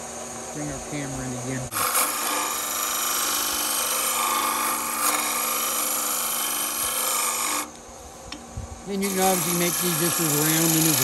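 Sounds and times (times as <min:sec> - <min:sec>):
lathe motor hum: 0:00.0 - 0:11.0
chisel rasping on spinning wood: 0:01.7 - 0:07.8, 0:08.9 - 0:11.0.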